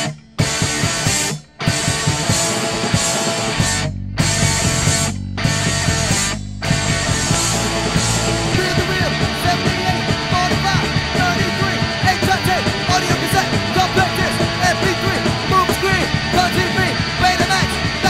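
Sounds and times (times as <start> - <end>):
punk rock band playing: 0.0 - 18.0.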